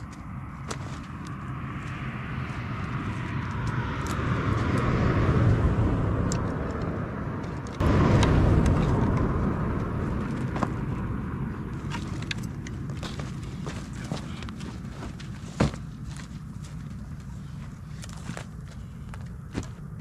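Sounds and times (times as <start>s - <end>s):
vehicles passing on road: 0.0s - 20.0s
bags and gear clicking rustling: 11.9s - 19.8s.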